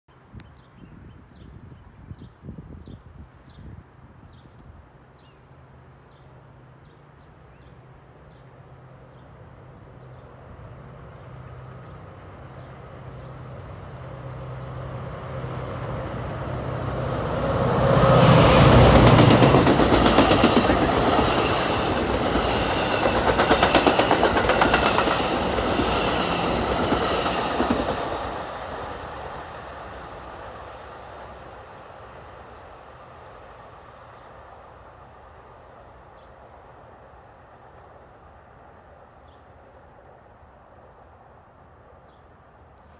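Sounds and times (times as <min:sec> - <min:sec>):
diesel locomotive engine drone: 0:05.5 - 0:42.7
train wheels clattering over rail joints: 0:18.8 - 0:28.1.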